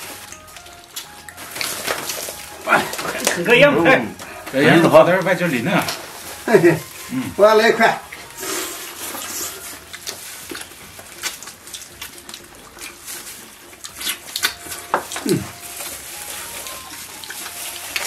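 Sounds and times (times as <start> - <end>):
people chewing with lip smacks: 0.0 - 7.4, 8.0 - 18.0
man murmuring mm: 15.2 - 15.6.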